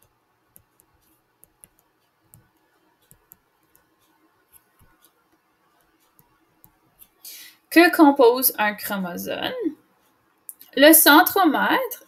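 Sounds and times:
digital pen tapping on screen: 0.5s - 7.2s.

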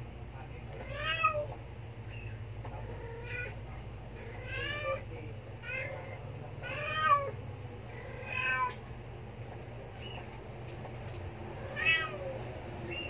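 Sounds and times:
kittens mewing: 2.7s - 9.0s, 11.6s - 12.6s.

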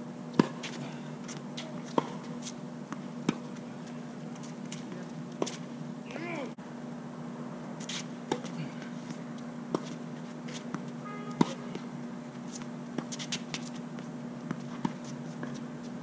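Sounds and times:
steady low hum: 0.0s - 16.0s
tennis ball bouncing on hard court: 0.4s - 3.6s, 10.7s - 11.9s
tennis ball hit with rackets: 11.4s - 11.9s.

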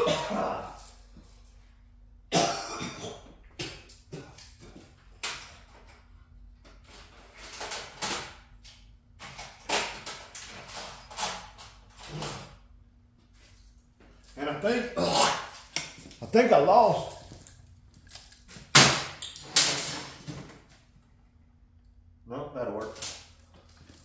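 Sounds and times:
metal tools clinking: 0.1s - 1.8s, 13.4s - 20.4s, 22.8s - 24.0s.

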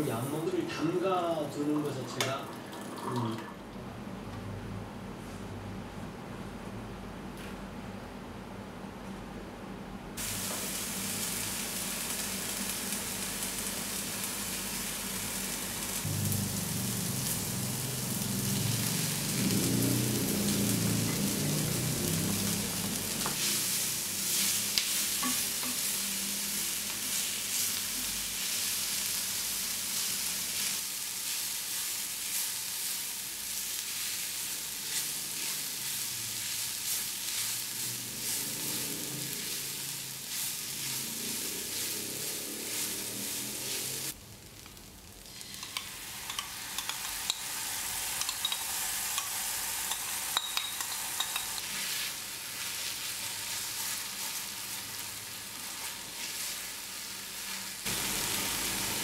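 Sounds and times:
vegetables sizzling in a pan: 10.2s - 59.0s.

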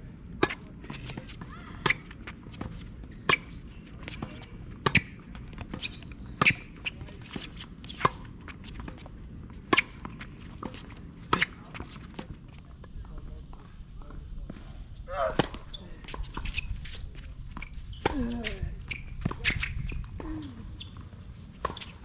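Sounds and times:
shoe steps on court: 0.4s - 22.0s
racket striking tennis ball: 9.6s - 12.3s, 15.1s - 20.2s
ball bouncing: 15.3s - 20.2s.

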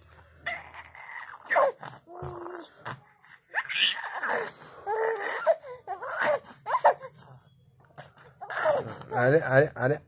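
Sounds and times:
baby cooing: 0.4s - 7.2s, 8.1s - 9.3s
baby gasping and grunting: 0.4s - 7.2s
baby strained sound: 0.4s - 7.2s, 8.1s - 9.2s.

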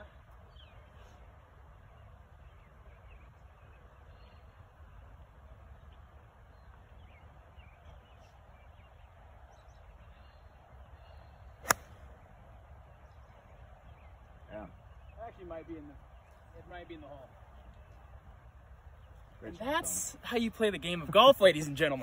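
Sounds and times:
quiet outdoor ambience: 0.0s - 22.0s
golf club striking ball: 11.6s - 12.0s.

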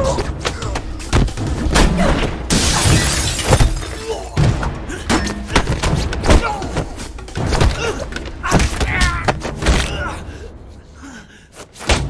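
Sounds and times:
glass shattering: 2.5s - 4.2s.

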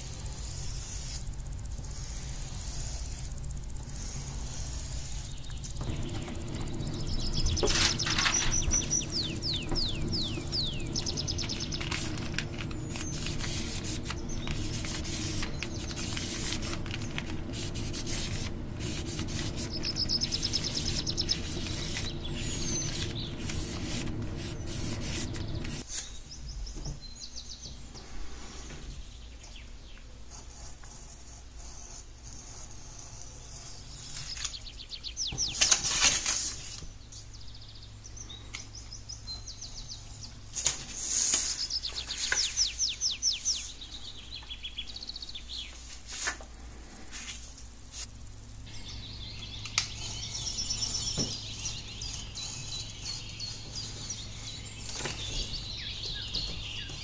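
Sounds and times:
birds chirping: 0.0s - 30.1s, 33.4s - 35.7s, 37.0s - 45.9s, 48.3s - 57.0s
charcoal scraping on paper: 11.4s - 25.9s.

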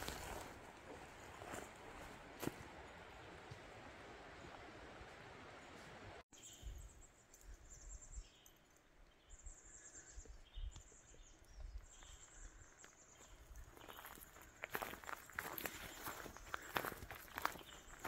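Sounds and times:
high-pitched bird calls: 13.7s - 18.0s.

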